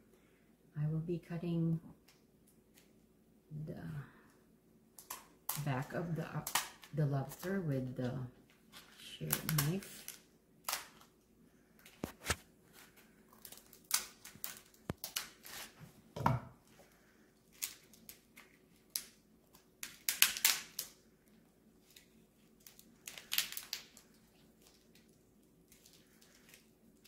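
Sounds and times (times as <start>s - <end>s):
shell cracking and snapping: 5.0s - 5.7s, 6.4s - 6.9s, 9.3s - 11.2s, 13.3s - 15.5s, 17.5s - 21.0s, 21.8s - 26.6s.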